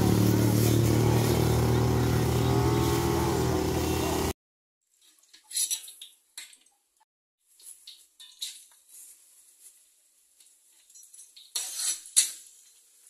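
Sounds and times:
engine running: 0.0 - 4.4.

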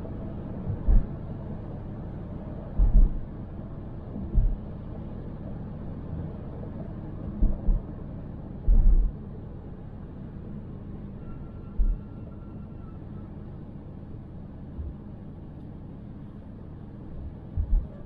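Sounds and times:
car road and engine noise: 0.0 - 18.0
short low thumps: 0.7 - 1.1, 2.8 - 3.2, 4.2 - 4.6, 7.4 - 7.9, 8.7 - 9.1, 11.8 - 12.1, 17.5 - 18.0.

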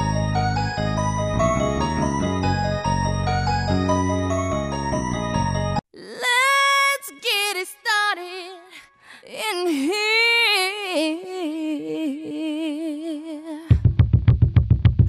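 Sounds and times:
woman singing unaccompanied: 6.0 - 13.7.

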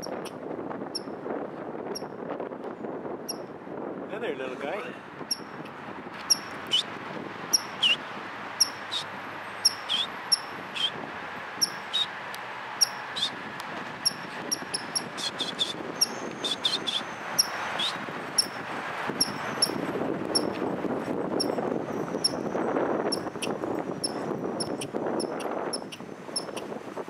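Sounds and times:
squirrel squeaky chirps: 0.0 - 0.4, 5.3 - 5.6, 6.2 - 6.9, 7.5 - 8.0, 8.6 - 11.0, 11.6 - 12.1, 12.8 - 13.4, 14.0 - 18.6, 19.2 - 19.8, 23.1 - 26.6.

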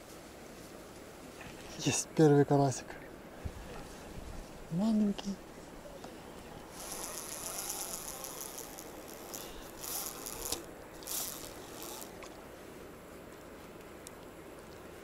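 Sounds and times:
fishing reel ratchet clicking: 6.8 - 12.3.

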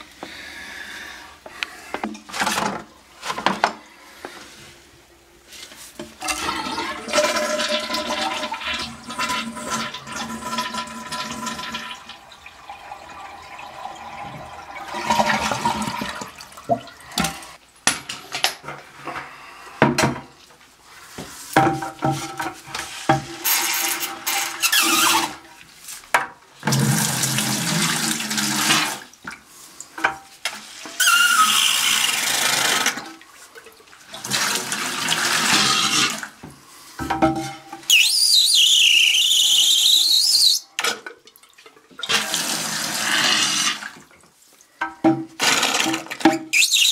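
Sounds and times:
water rushing in toilet tank: 6.2 - 17.6, 26.6 - 29.1, 30.6 - 36.4, 42.0 - 44.1.

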